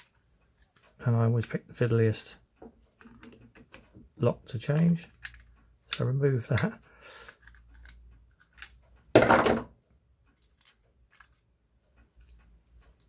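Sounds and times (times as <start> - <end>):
pliers clicking and scraping metal: 0.0 - 2.0, 3.0 - 3.9, 4.5 - 8.8, 10.2 - 11.5, 12.1 - 13.0.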